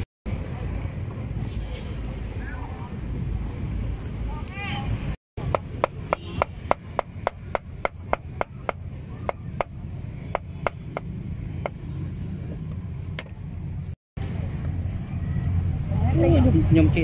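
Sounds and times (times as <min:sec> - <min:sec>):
low hum of street noise: 0:00.0 - 0:17.0
cleaver chopping on wooden block: 0:05.4 - 0:11.8.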